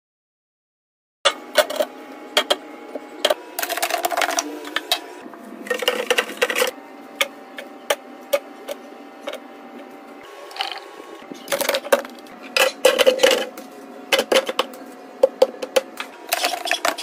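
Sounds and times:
plastic boxes clicking and tapping: 14.1s - 17.0s.

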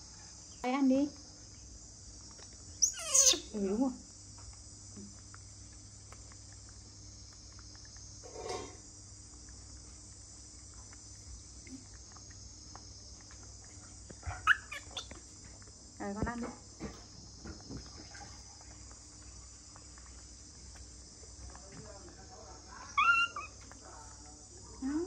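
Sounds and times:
insects chirring: 0.0s - 25.0s
short squeaky calls: 2.8s - 3.6s, 14.3s - 15.2s, 22.9s - 23.6s.

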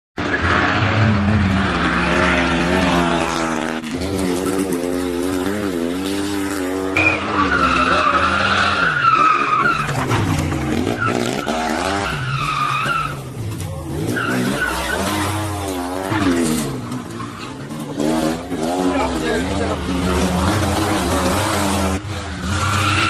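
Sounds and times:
rally car engines revving: 0.2s - 23.0s
high wavering tyre squeal: 6.5s - 23.0s.

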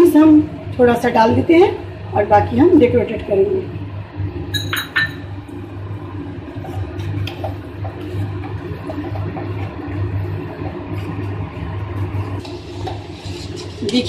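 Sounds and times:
steady low hum: 0.0s - 14.0s
spoon clinking against pot: 4.6s - 5.2s.

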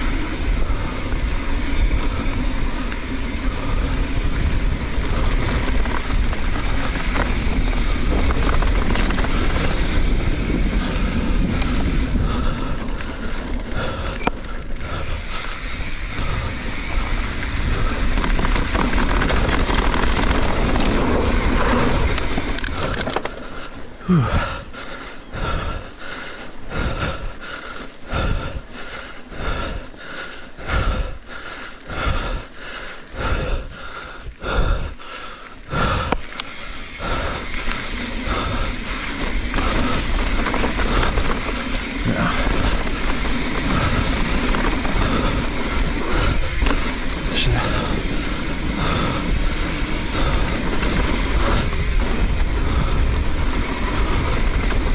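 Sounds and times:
wind noise: 0.0s - 23.4s, 35.7s - 54.9s
bike chain and frame rattle: 0.0s - 31.4s, 35.2s - 54.9s
bike tyres on dirt: 0.0s - 54.9s.

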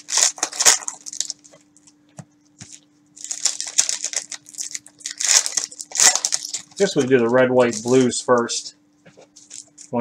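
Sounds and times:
cellophane wrapper crinkling and tearing: 0.0s - 2.0s, 2.6s - 8.7s, 9.3s - 10.0s.

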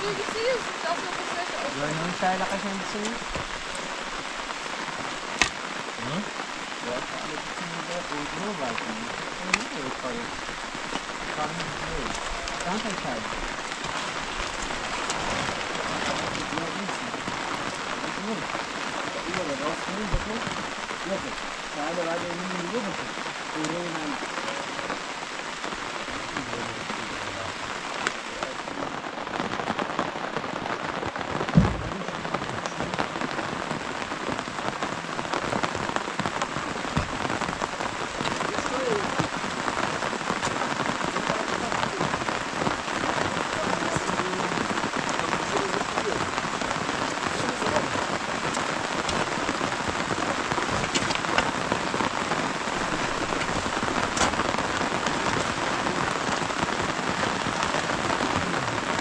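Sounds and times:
rain pattering: 0.0s - 59.0s
short low thump: 31.5s - 32.2s.

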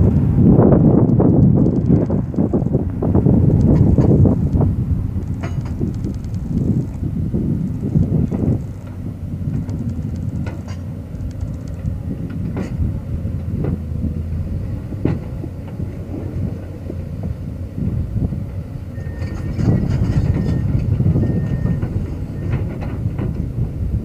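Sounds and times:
excavator diesel engine running: 0.0s - 24.0s
metal clanks: 5.2s - 6.3s, 9.6s - 12.9s.

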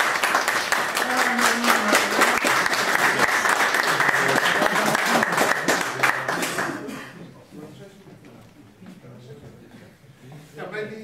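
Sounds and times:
people applauding: 0.0s - 7.1s.

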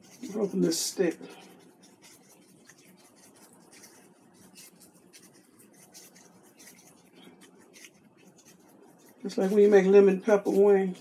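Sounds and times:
seasoning packet rustling: 0.0s - 11.0s.

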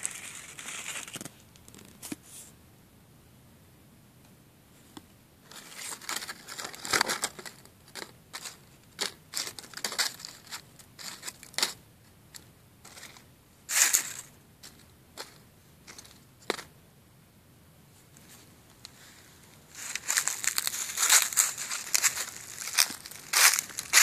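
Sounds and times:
dry leaves and twigs crunching: 0.0s - 2.0s, 5.5s - 16.7s, 18.2s - 24.0s.

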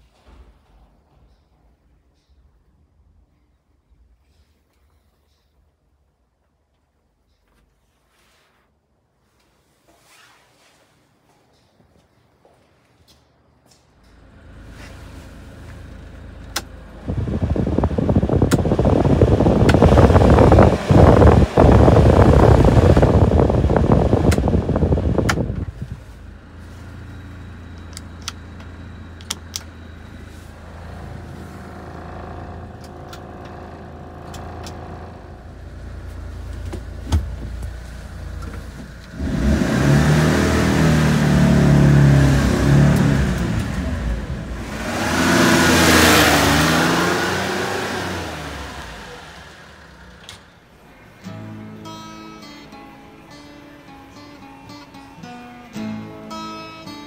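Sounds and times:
heater blower fan: 10.6s - 57.0s
engine idling and revving: 14.1s - 51.5s.

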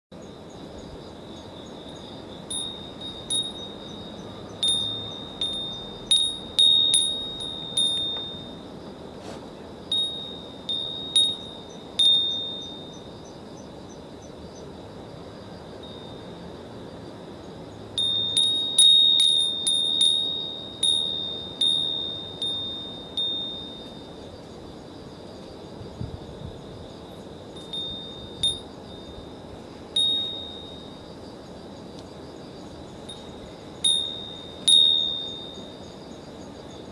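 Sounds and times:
wind bell ringing: 1.8s - 8.8s, 9.9s - 13.2s, 15.8s - 16.5s, 18.0s - 24.2s, 27.5s - 31.2s, 33.1s - 35.9s.

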